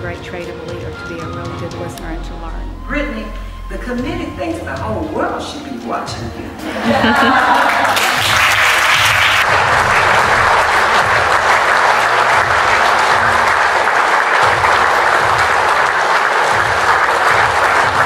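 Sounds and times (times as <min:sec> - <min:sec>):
large audience applauding: 0:06.8 - 0:18.0.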